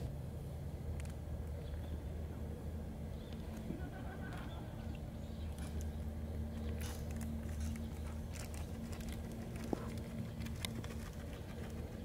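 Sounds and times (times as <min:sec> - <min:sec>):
faint constant hum: 0:00.0 - 0:12.0
light rustles and ticks: 0:04.3 - 0:12.0.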